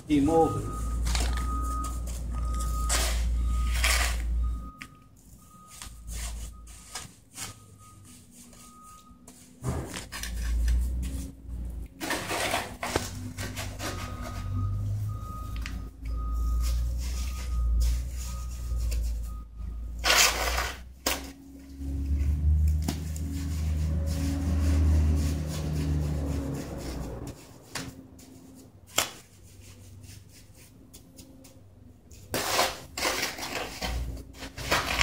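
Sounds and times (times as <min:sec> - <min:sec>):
scoop scraping wet concrete: 0:00.1 - 0:04.4.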